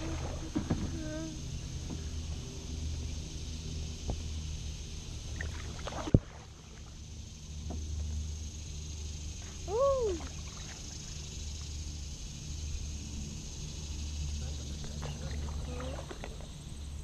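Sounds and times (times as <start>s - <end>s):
paddle in water: 0.0s - 3.2s, 4.0s - 8.4s, 9.4s - 12.1s, 14.4s - 17.0s
steady low rumble: 0.0s - 17.0s.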